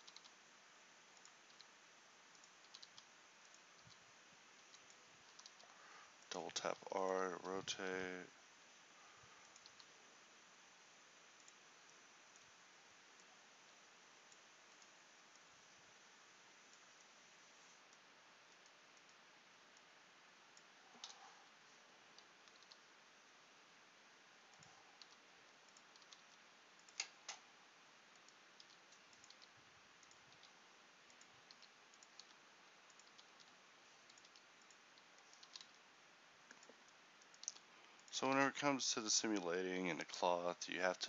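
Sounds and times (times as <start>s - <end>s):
mouse clicks: 0.0s - 0.4s, 1.2s - 1.7s, 2.3s - 4.0s, 4.6s - 6.4s, 9.4s - 9.9s, 20.6s - 21.3s, 22.2s - 22.9s, 24.5s - 27.4s, 28.1s - 35.8s, 36.5s - 38.1s
low steady hiss: 0.0s - 41.0s.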